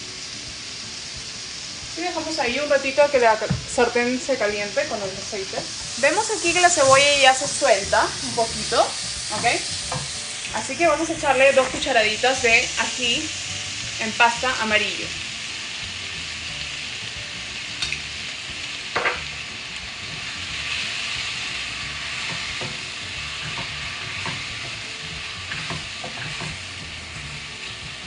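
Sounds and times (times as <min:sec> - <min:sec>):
onions sizzling in oil: 0:00.0 - 0:28.0
spoon knocking on pan: 0:09.3 - 0:10.2, 0:18.9 - 0:19.3, 0:22.2 - 0:24.8, 0:25.5 - 0:26.6.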